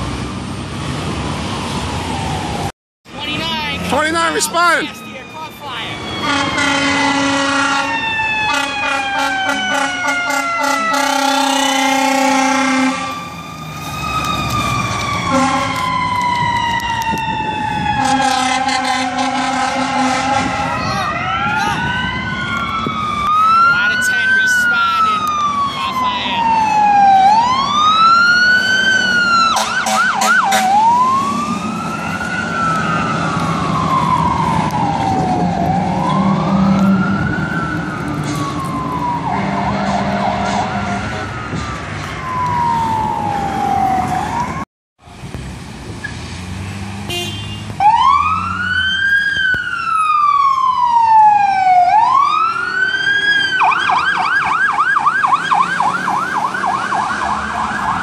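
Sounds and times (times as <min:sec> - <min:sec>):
sirens wailing: 0:00.0 - 0:44.7, 0:45.9 - 0:58.0
truck engines running: 0:00.0 - 0:58.0
siren fast yelp: 0:03.5 - 0:28.6, 0:47.8 - 0:58.0.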